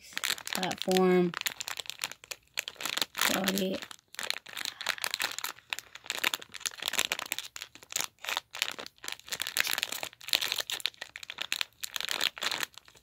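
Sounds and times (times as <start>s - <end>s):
foil bag crinkling: 0.0s - 13.0s.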